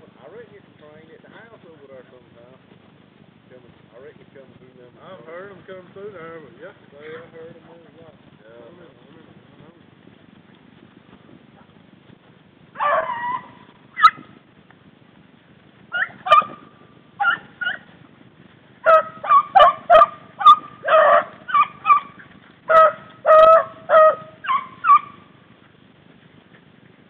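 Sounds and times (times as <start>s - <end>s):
dogs baying: 12.8s - 14.3s, 15.9s - 18.0s, 18.8s - 25.3s.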